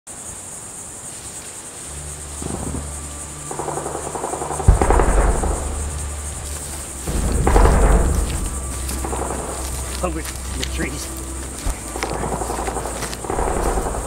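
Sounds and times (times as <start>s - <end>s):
high insect buzz: 0.1s - 14.0s
low drone: 1.9s - 14.0s
deep boom: 4.4s - 10.5s, 13.2s - 14.0s.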